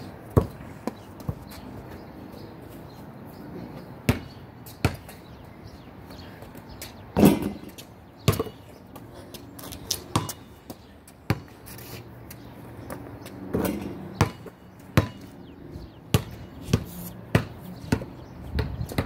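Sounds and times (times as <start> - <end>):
basketball bouncing: 0.3 - 1.6, 4.1 - 5.2, 7.2 - 8.7, 10.1 - 11.6, 13.2 - 15.3, 16.1 - 19.0
ball hitting hoop: 7.2 - 7.7.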